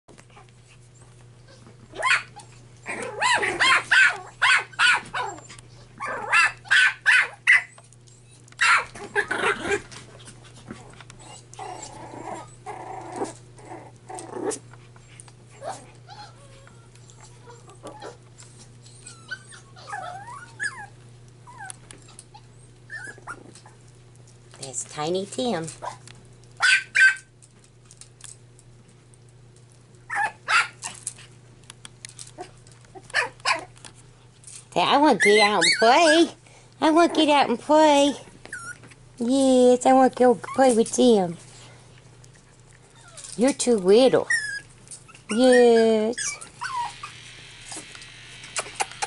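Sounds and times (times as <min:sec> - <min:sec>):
puppies growling and yipping: 0:00.1 - 0:24.5, 0:29.2 - 0:31.4, 0:32.1 - 0:37.4, 0:38.2 - 0:39.1, 0:40.4 - 0:49.0
puppy whimpers: 0:10.8 - 0:23.8, 0:35.0 - 0:36.4, 0:38.4 - 0:38.8, 0:42.9 - 0:43.4, 0:44.1 - 0:47.9.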